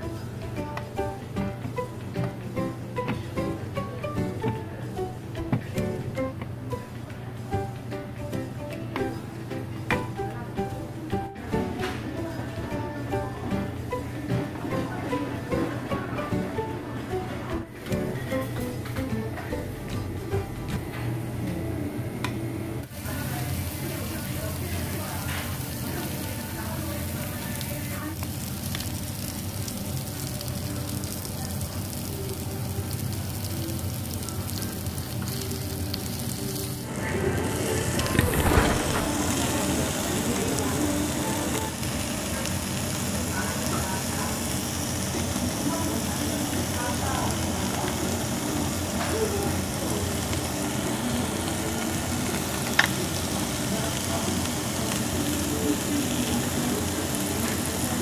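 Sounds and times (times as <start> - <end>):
meat sizzling on a grill plate: 22.9 - 58.0.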